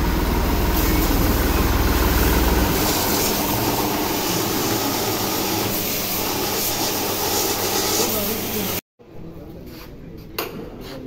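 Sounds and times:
tractor diesel engine idling: 0.0s - 4.0s
hose spraying hiss: 0.6s - 8.8s.

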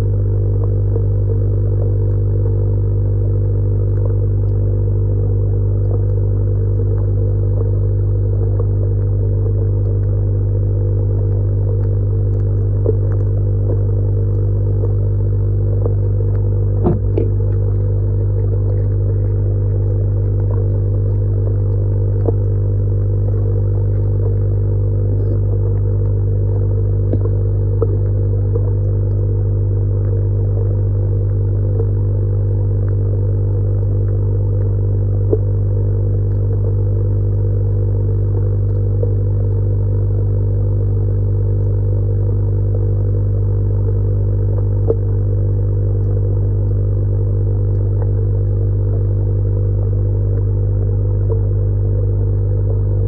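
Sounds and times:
sharp knock: 16.8s - 17.3s
electric air pump humming: 16.8s - 20.6s.

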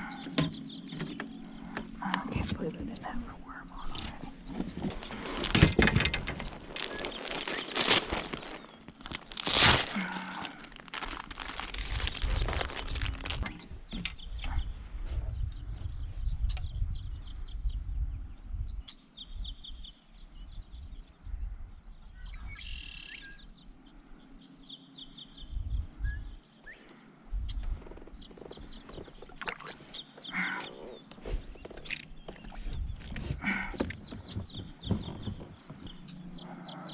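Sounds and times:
birds chirping: 0.0s - 21.2s, 21.8s - 36.9s
gusty wind rumble on microphone: 10.9s - 19.8s, 25.4s - 26.4s.

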